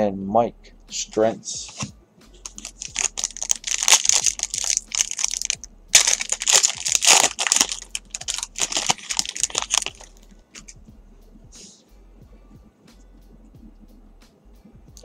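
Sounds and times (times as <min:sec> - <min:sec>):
foil wrapper tearing and crinkling: 0:02.4 - 0:10.2.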